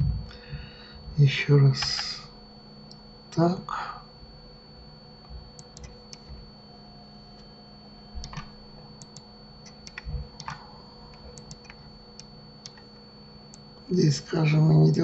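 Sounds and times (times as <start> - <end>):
faint steady hum: 0.0 - 15.0
keyboard and mouse clicking: 5.6 - 6.3, 8.2 - 12.9.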